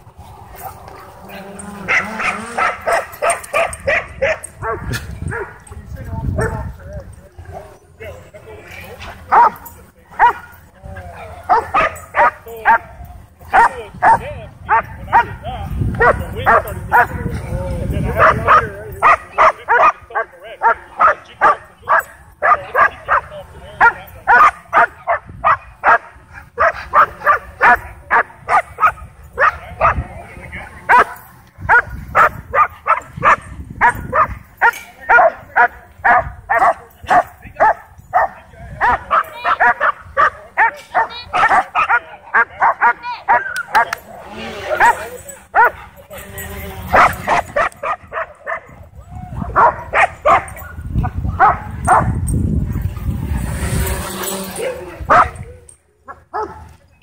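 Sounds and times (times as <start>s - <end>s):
dogs barking rapidly: 0.0s - 5.7s, 8.9s - 10.6s, 11.4s - 44.0s, 44.6s - 46.0s, 46.6s - 48.8s, 49.4s - 55.5s, 56.1s - 56.7s.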